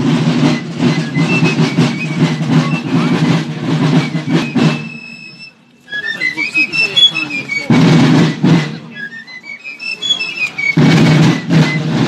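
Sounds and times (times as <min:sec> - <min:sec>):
marching snare and bass drums: 0:00.0 - 0:12.0.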